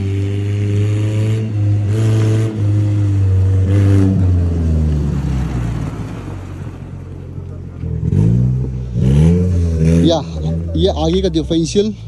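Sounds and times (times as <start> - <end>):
engine revving hard: 0.0 - 5.2, 7.9 - 10.9
tyres on loose gravel: 4.4 - 8.4.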